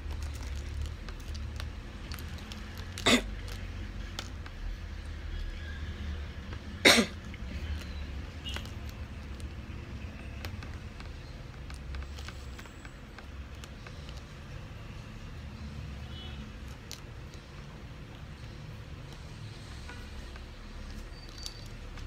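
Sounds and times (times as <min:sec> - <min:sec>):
person coughing: 0:03.0 - 0:03.3, 0:06.8 - 0:07.2.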